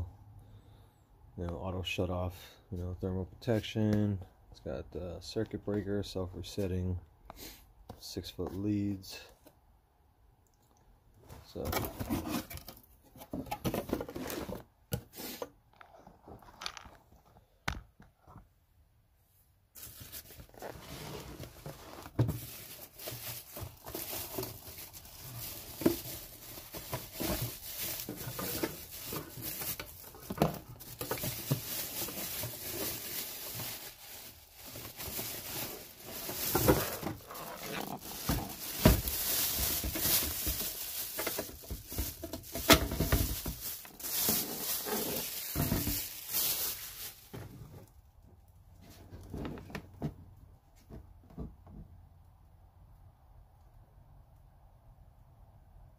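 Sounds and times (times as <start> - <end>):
cardboard box rustling: 11.6 - 14.7, 19.8 - 47.6
plastic packaging crinkling: 21.8 - 47.5.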